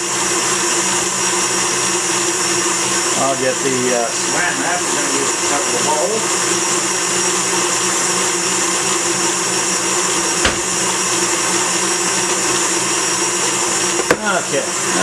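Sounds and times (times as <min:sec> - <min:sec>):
stand mixer running: 0:00.0 - 0:15.0
brief knock: 0:10.4 - 0:10.8.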